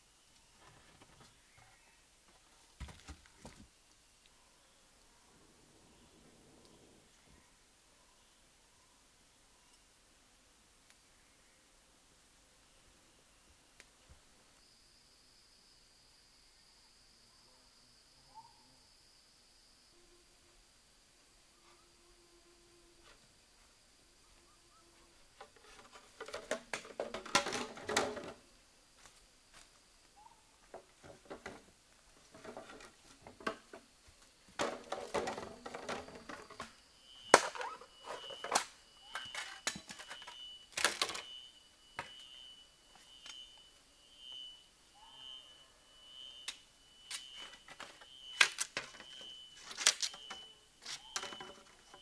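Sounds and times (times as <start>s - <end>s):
rustling and clattering on leaves: 25.4s - 29.7s, 30.7s - 36.8s.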